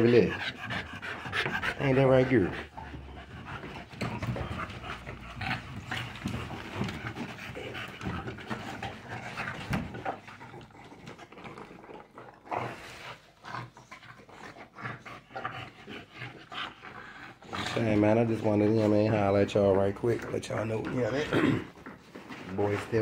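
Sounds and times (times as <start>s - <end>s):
dogs scuffling: 0.0s - 11.1s, 17.6s - 23.0s
dogs breathing heavily: 0.0s - 23.0s.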